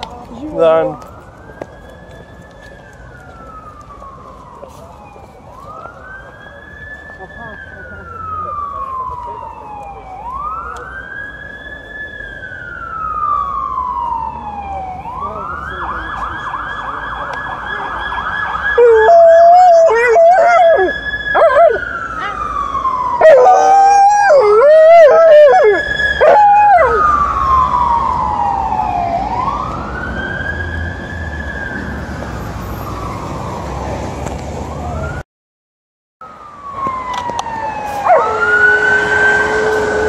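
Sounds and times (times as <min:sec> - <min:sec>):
wailing emergency siren: 0:00.0 - 0:35.2, 0:36.2 - 0:40.0
dog howling: 0:18.8 - 0:21.8, 0:23.2 - 0:27.1.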